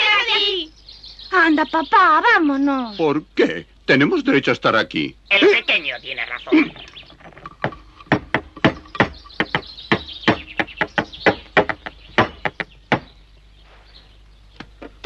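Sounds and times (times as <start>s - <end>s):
heavy object tumbling and bouncing: 7.0s - 9.7s.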